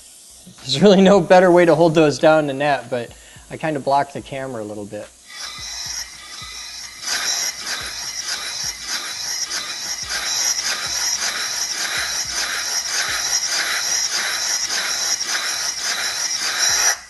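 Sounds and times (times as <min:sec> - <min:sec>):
air hissing from hose: 0:00.0 - 0:02.4, 0:03.0 - 0:17.0
gas meter valves chattering: 0:05.3 - 0:17.0.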